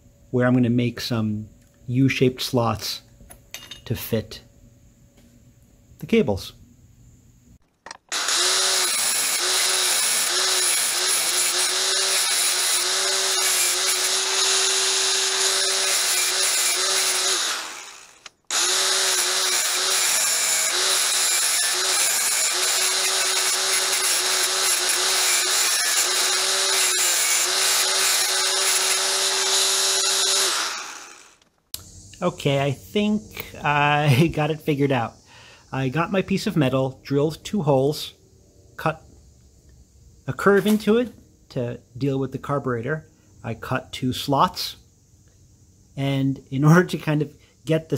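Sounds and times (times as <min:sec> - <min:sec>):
angle grinder cutting metal: 0:08.1 - 0:31.5.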